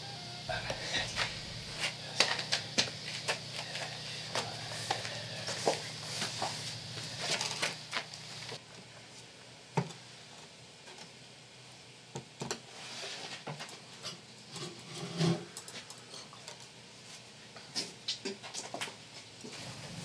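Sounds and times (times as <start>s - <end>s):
footsteps: 0.5s - 8.6s.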